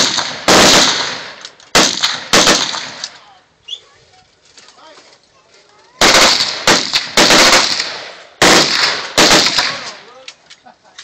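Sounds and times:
gunshots echoing: 0.0 - 3.2, 6.0 - 10.2.

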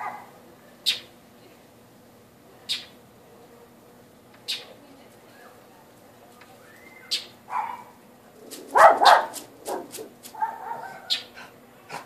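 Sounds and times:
bird alarm calls: 0.8 - 1.1, 2.7 - 3.0, 4.4 - 4.8, 6.7 - 7.7, 10.8 - 11.4.

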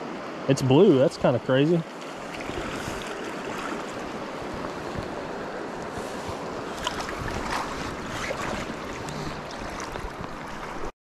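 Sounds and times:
rushing creek: 0.0 - 10.9
wind on microphone: 2.3 - 10.9
fish splashing in water: 6.6 - 10.9.

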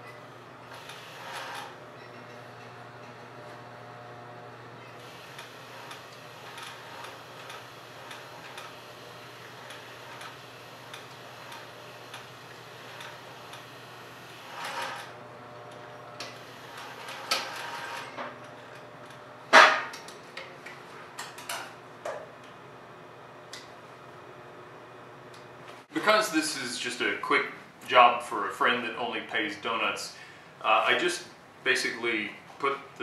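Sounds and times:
sewing machine stitching: 0.7 - 2.3, 4.9 - 15.2, 16.2 - 18.2.

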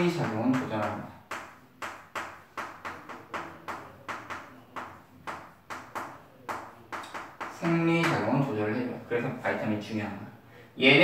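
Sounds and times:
chalk tapping on a chalkboard: 0.0 - 8.4.

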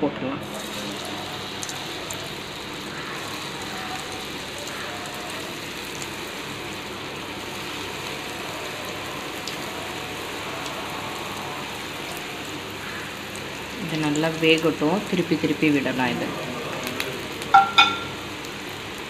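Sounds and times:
hot oil sizzling: 0.4 - 19.0
faint crackles: 16.7 - 17.5.

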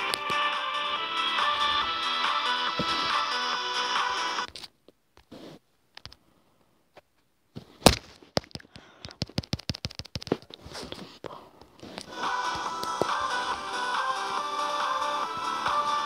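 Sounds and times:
music: 0.0 - 4.5, 12.1 - 16.0
fingers tapping on phone: 8.4 - 10.4.

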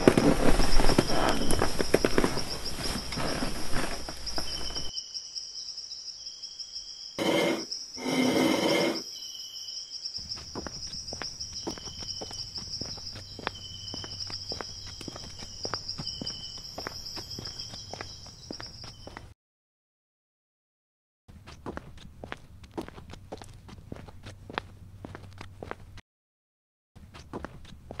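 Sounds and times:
crickets chirring: 0.0 - 19.3.

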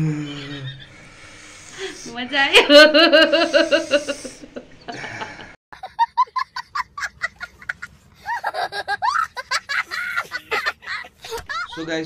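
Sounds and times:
child giggling: 5.8 - 11.8.

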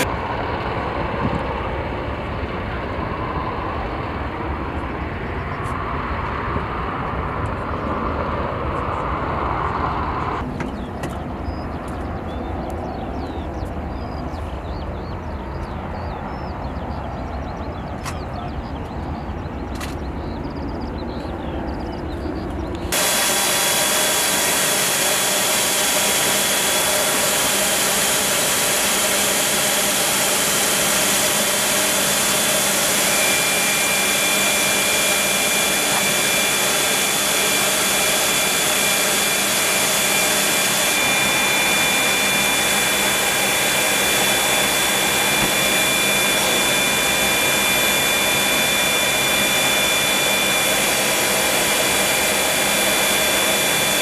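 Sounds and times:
helicopter turbine whine: 0.0 - 54.0
high steady tone: 22.9 - 54.0.

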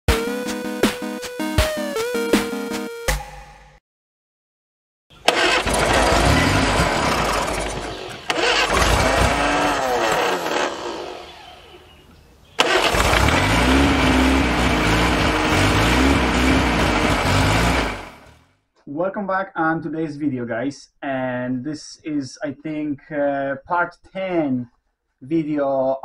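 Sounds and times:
car engine starting and running: 5.1 - 18.4.

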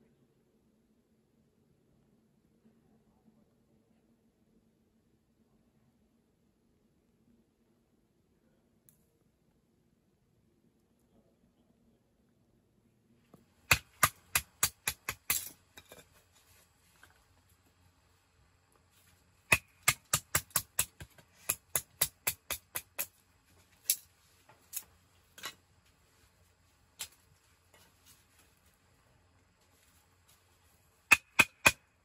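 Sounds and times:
rapid sharp knocks: 31.1 - 31.8.

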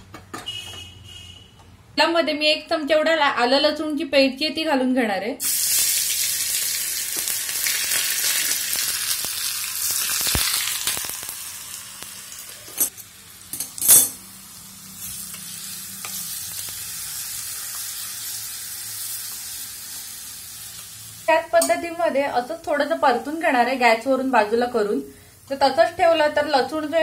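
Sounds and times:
paste sizzling in hot oil: 5.4 - 13.6, 14.2 - 21.3.

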